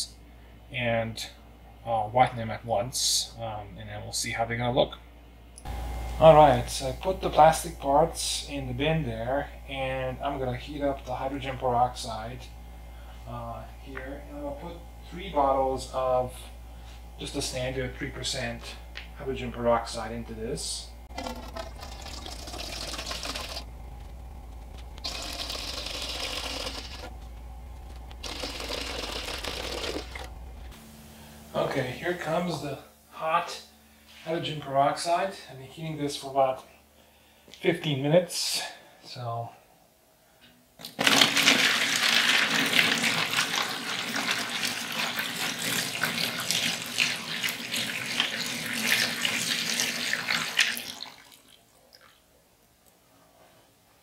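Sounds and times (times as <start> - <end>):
liquid pouring into metal pot: 21.1 - 23.7
liquid pouring into plastic bin: 21.1 - 23.7, 40.8 - 52.2.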